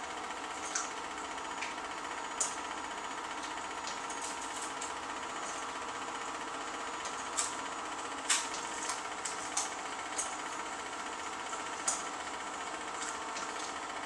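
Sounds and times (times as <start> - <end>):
film projector whirring: 0.0 - 14.0.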